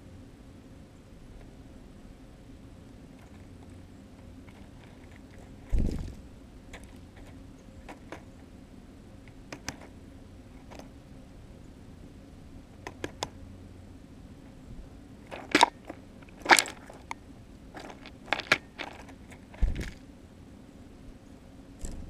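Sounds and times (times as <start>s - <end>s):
bird pecking seeds: 3.1s - 8.5s, 9.2s - 11.0s, 15.2s - 20.1s.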